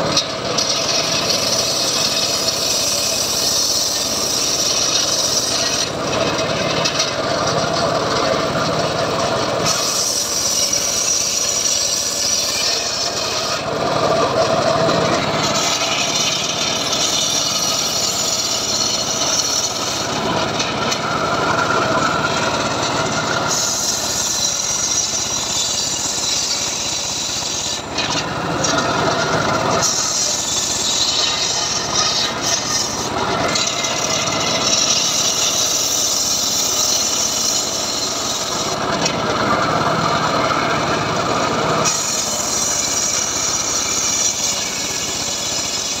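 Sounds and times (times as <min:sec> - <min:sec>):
circular saw cutting wood: 0:00.0 - 0:46.0.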